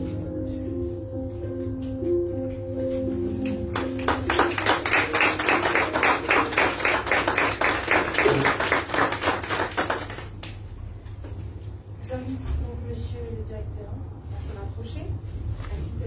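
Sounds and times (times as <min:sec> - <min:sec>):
audience clapping: 0:03.4 - 0:10.6.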